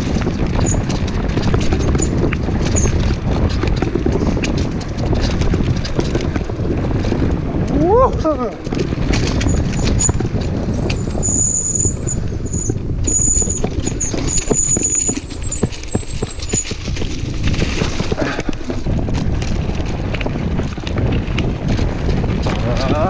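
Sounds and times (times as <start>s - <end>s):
bike rattling and knocking: 0.0s - 23.0s
bike tyres rumbling on dirt: 0.0s - 23.0s
wind buffeting microphone: 0.0s - 23.0s
high squeal: 10.9s - 16.8s.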